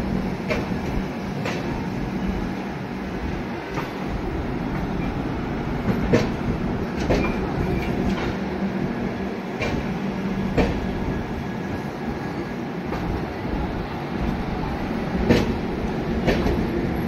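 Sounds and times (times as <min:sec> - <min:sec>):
train rumble: 0:00.0 - 0:17.0
train wheels clacking over joints: 0:05.8 - 0:08.4, 0:09.6 - 0:10.9, 0:16.2 - 0:16.7.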